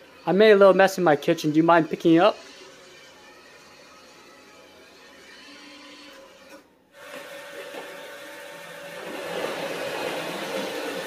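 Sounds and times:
robot vacuum whirring: 0:06.1 - 0:11.0.

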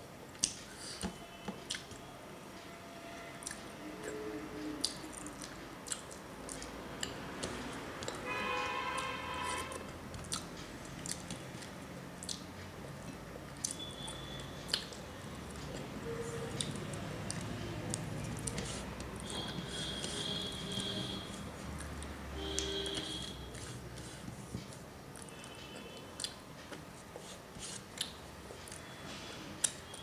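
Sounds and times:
wet chewing and lip smacks: 0:04.8 - 0:08.2, 0:10.2 - 0:15.9, 0:25.1 - 0:26.9, 0:27.7 - 0:28.9.

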